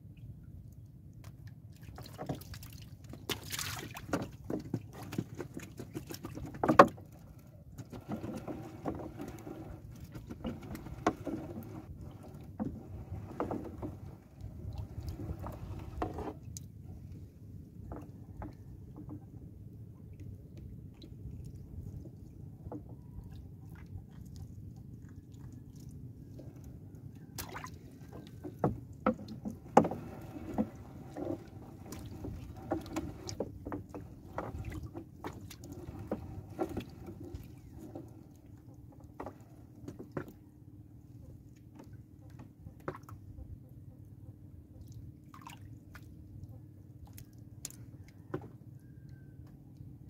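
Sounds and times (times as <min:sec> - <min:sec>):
water lapping at boat: 0:00.0 - 0:50.0
wet net splashing and dripping: 0:01.7 - 0:04.3, 0:27.4 - 0:27.8, 0:45.3 - 0:46.0
knocks against wooden hull: 0:03.1 - 0:07.1, 0:27.4 - 0:37.4.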